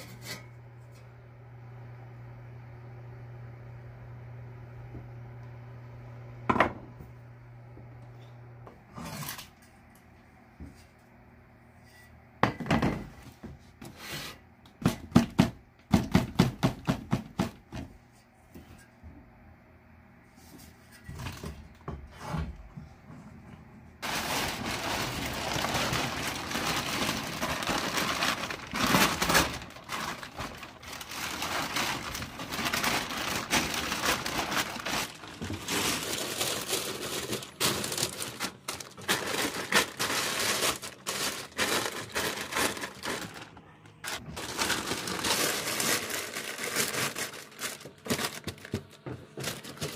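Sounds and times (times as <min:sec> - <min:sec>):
plastic tarp crinkling: 0:24.0 - 0:49.9.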